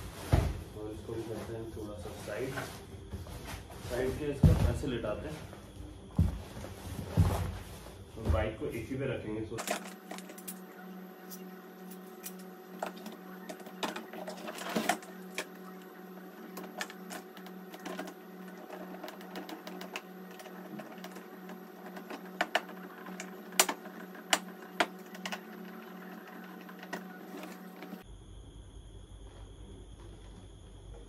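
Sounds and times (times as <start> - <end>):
plastic parts clicking and knocking: 16.4 - 28.0.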